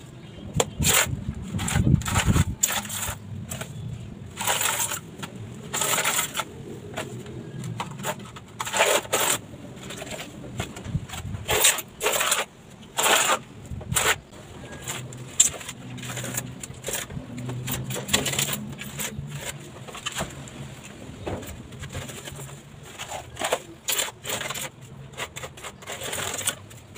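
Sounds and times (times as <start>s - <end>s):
hand tool scraping wet grout: 0.6s - 5.1s, 5.7s - 6.5s, 8.0s - 10.2s, 11.4s - 19.6s, 22.2s - 26.9s.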